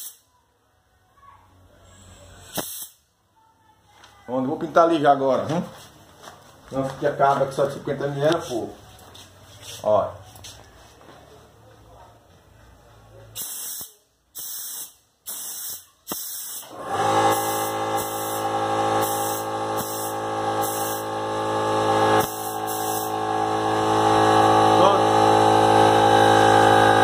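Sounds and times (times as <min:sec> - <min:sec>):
paint spray gun hissing: 0:00.0 - 0:00.2, 0:02.5 - 0:03.0, 0:13.4 - 0:21.2, 0:22.1 - 0:23.3.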